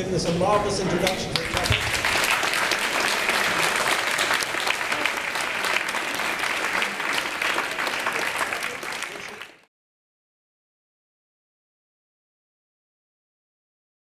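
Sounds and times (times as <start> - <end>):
audience applauding: 1.0 - 9.7.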